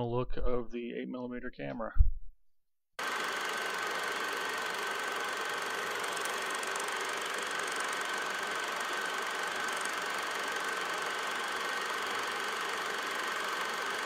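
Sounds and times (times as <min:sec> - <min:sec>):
film projector whirring clatter: 0:03.0 - 0:14.0
thin steady whine: 0:03.1 - 0:14.0.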